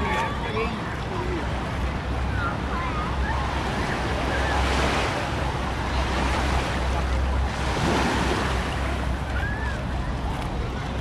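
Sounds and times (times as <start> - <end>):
small waves washing on sand: 0.0 - 11.0
wind rumble on microphone: 0.7 - 11.0.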